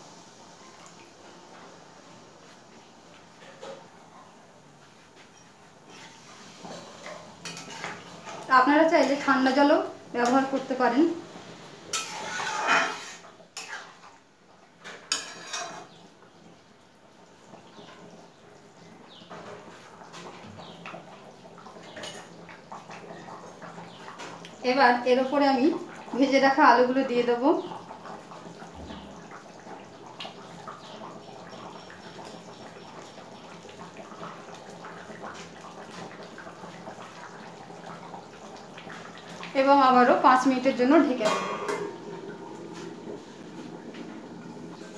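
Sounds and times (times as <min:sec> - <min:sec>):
curry bubbling in a wok: 0:00.0 - 0:44.9
metal spatula scraping pot: 0:05.4 - 0:09.4, 0:11.9 - 0:14.1, 0:14.9 - 0:16.0.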